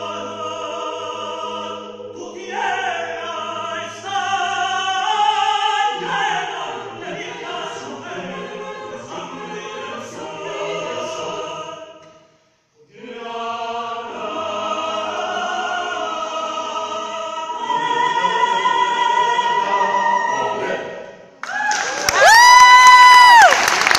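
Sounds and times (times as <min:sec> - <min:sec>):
choir singing a cappella: 0:00.0 - 0:21.4
person whooping: 0:21.4 - 0:23.7
applause: 0:21.4 - 0:23.9.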